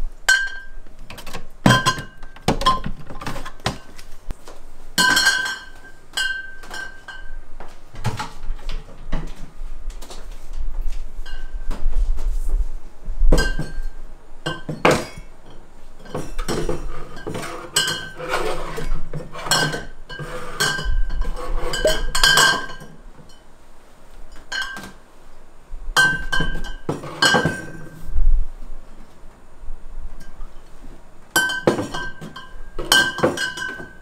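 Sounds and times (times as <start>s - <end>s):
glassware clinking: 0.3s - 0.8s, 5.0s - 7.4s, 11.2s - 11.7s, 13.3s - 23.5s, 24.4s - 25.0s, 26.0s - 28.0s, 31.4s - 34.0s.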